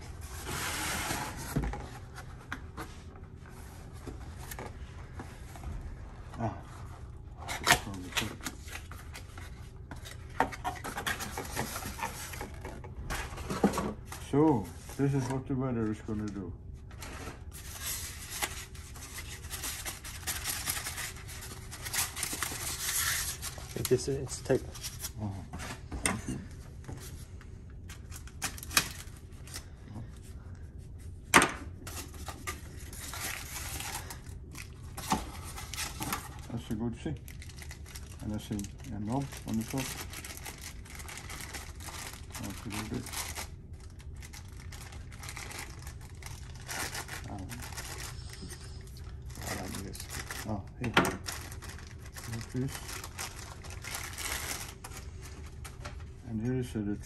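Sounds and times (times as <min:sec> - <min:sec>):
cardboard rubbing and scraping: 0:00.4 - 0:01.7
packaging rustling: 0:37.2 - 0:48.3, 0:49.0 - 0:56.1.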